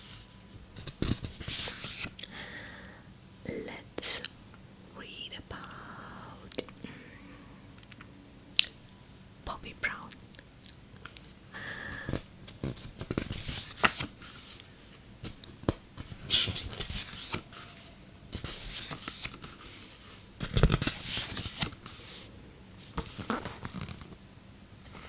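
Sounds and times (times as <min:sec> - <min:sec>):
paper rustling and scratching: 0:00.8 - 0:02.1, 0:12.1 - 0:24.2.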